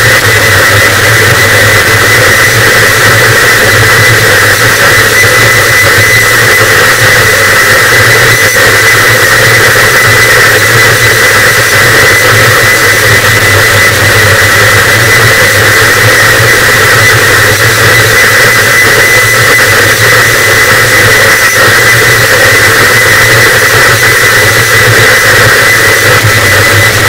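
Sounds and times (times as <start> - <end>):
loud distorted static: 0.0 - 27.0
low drone: 0.0 - 27.0.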